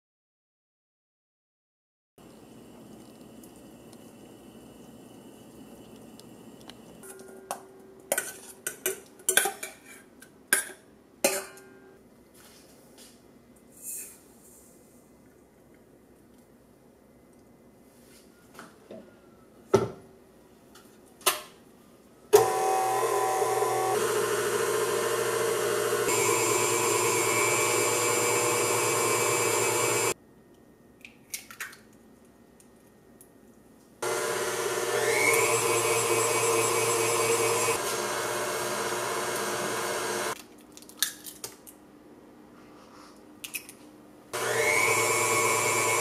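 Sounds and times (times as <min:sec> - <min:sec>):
stand mixer whisking in metal bowl: 0:22.4 - 0:30.2, 0:34.0 - 0:40.4, 0:44.4 - 0:46.0.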